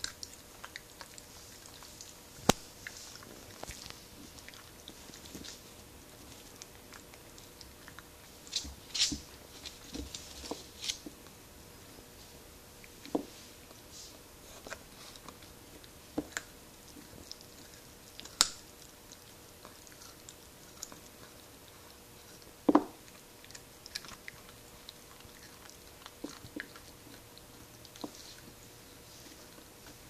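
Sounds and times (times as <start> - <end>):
dog crunching a raw carrot: 0.0 - 11.4, 14.5 - 30.0.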